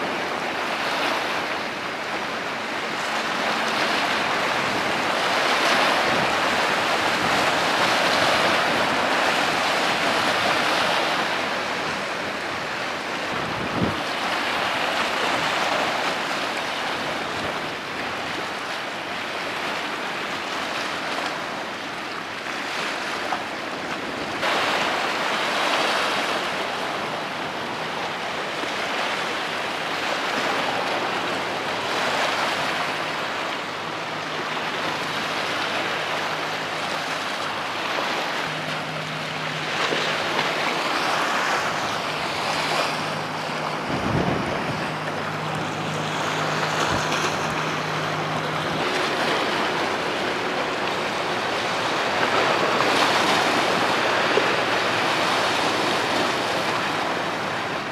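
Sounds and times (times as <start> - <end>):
low ship engine hum: 0.0 - 57.9
rushing splashing water: 0.0 - 57.9
wind on microphone: 2.9 - 18.6, 35.8 - 57.9.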